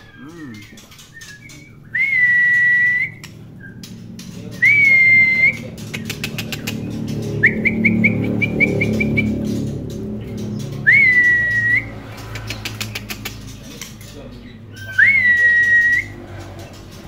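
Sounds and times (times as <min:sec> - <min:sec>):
short rising whistles: 0:10.8 - 0:12.0.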